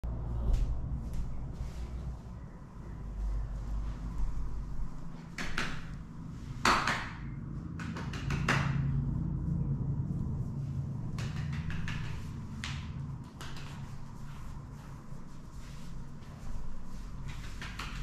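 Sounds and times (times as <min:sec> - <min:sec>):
man clapping hands: 0:07.8 - 0:08.8, 0:11.1 - 0:13.8.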